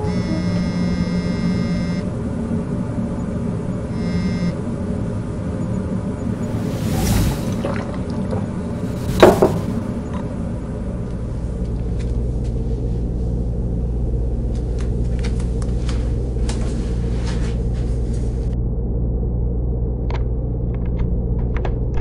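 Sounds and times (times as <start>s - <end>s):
low rumbling drone: 0.0s - 14.5s, 18.4s - 21.4s.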